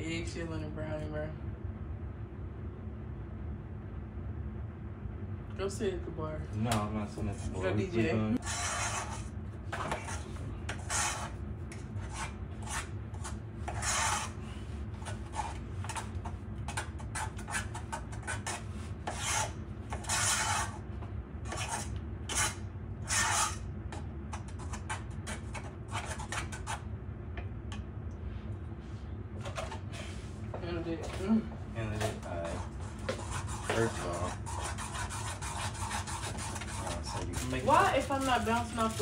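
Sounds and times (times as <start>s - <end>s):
steady low hum: 0.0s - 39.0s
utensil scraping batter in bowl: 8.4s - 20.9s, 21.5s - 26.8s, 31.9s - 39.0s.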